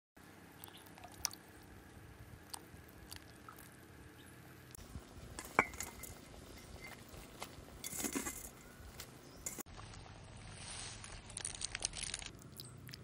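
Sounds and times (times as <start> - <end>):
soft wet squishes: 2.4 - 3.9
metallic clink against pot: 5.4 - 7.0.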